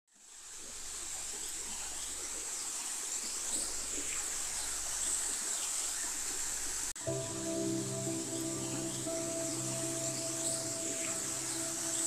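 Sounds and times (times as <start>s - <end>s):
creek water rushing: 5.9s - 12.0s
faint high chirps: 7.0s - 12.0s.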